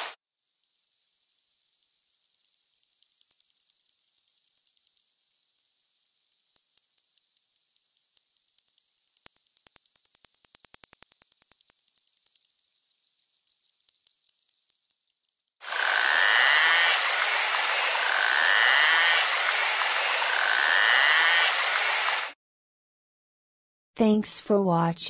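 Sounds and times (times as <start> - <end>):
steady high hiss: 0.0 - 14.9, 15.6 - 22.4
narwhal echolocation clicks: 0.6 - 5.1, 6.3 - 12.7, 13.4 - 19.6.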